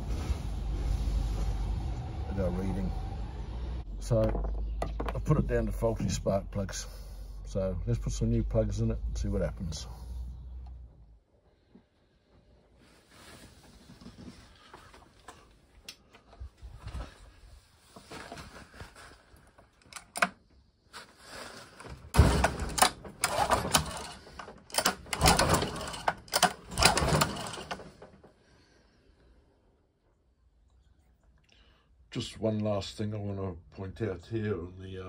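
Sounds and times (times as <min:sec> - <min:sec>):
outboard engine pull starter: 0:22.2 - 0:28.2.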